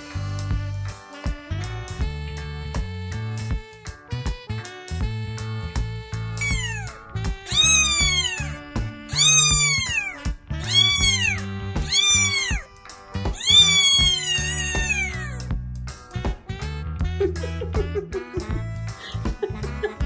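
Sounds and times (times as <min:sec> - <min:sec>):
background music: 0:00.0 - 0:20.0
kitten meowing: 0:06.4 - 0:15.5.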